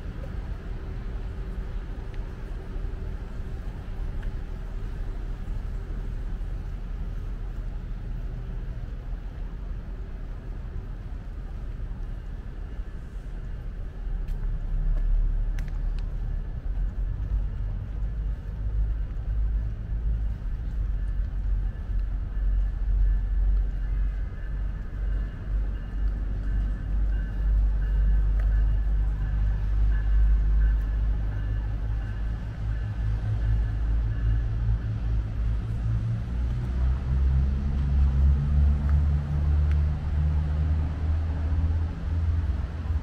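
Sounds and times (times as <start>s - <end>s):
vehicle engine rumbling: 0.0s - 43.0s.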